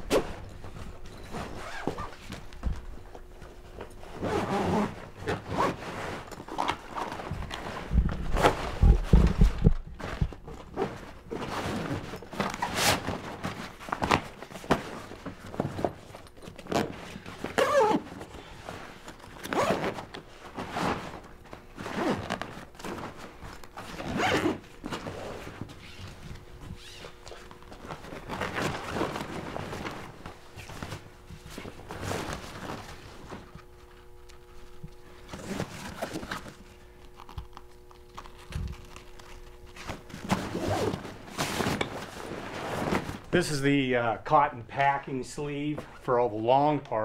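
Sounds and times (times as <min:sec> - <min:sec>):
zipper being pulled: 0:01.2 - 0:02.3, 0:04.0 - 0:13.3, 0:16.6 - 0:18.2, 0:19.3 - 0:21.2, 0:21.8 - 0:23.0, 0:23.8 - 0:26.2, 0:37.1 - 0:43.2
fabric rustling: 0:38.7 - 0:43.4.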